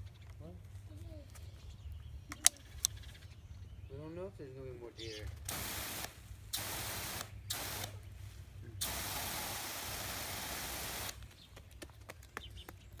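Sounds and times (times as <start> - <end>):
water hissing from hose nozzle: 5.5 - 8.0, 8.8 - 11.2.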